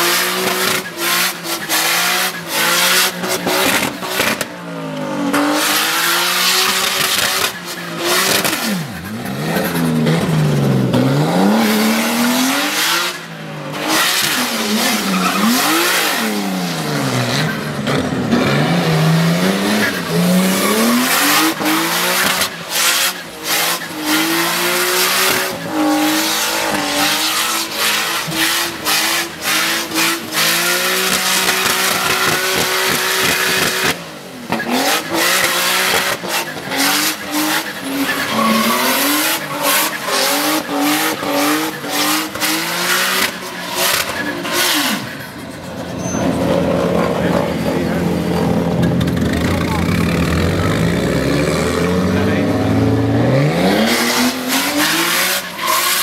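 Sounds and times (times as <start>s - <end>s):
car engine revving hard: 0.0s - 56.0s
tyres squealing: 36.8s - 41.9s.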